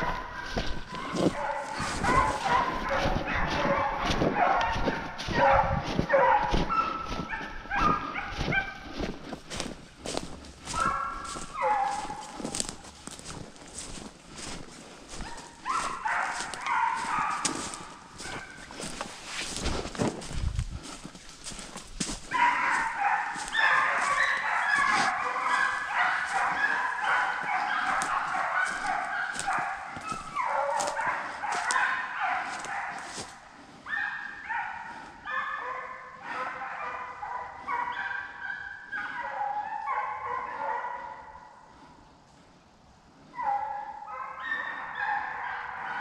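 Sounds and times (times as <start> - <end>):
footsteps crunching dry leaves: 0.0 - 33.5
hounds baying: 0.0 - 42.0, 43.2 - 46.0.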